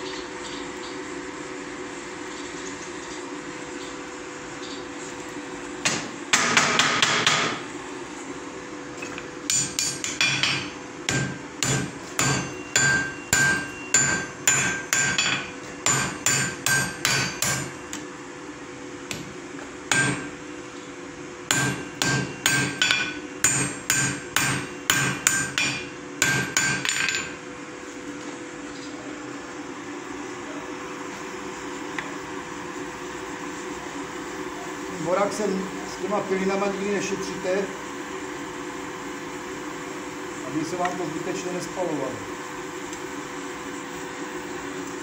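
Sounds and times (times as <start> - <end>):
steady hum: 3.3 - 45.0
hammer striking iron on anvil: 5.8 - 7.6, 9.0 - 18.0, 19.9 - 20.4, 21.5 - 27.4.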